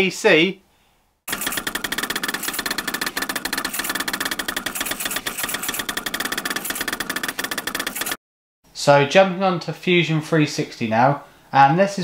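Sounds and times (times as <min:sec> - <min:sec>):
three d printer printing: 0:01.3 - 0:08.2.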